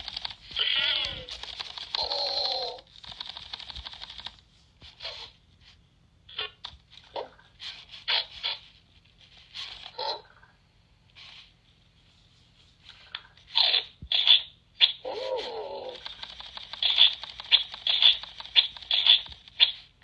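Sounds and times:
rapid clicking: 0.0s - 4.4s, 15.9s - 19.9s.

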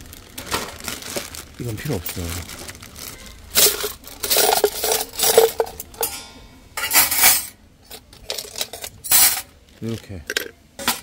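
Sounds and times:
cutlery clattering into a tray: 3.6s - 9.5s, 10.3s - 11.0s
small cutlery clinks: 3.7s - 9.5s.

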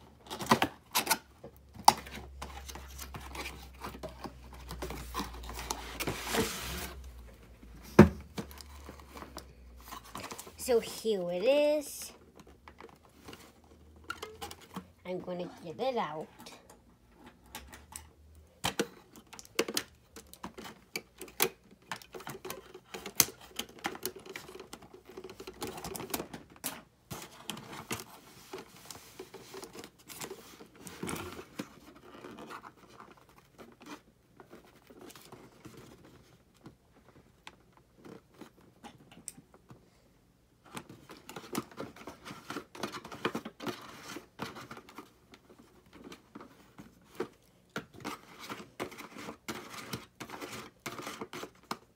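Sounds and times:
cardboard scraping and tearing: 4.7s - 7.1s.

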